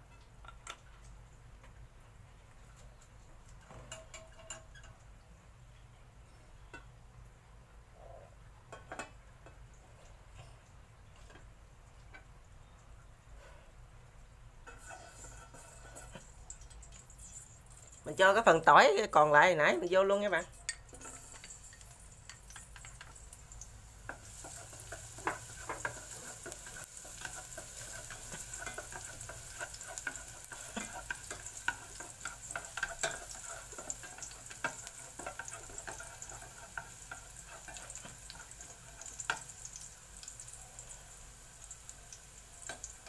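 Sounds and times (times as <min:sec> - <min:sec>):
garlic sizzling in oil: 0:14.6 - 0:43.0
chopsticks scraping a pot: 0:14.7 - 0:16.4, 0:20.7 - 0:23.0, 0:24.1 - 0:39.5.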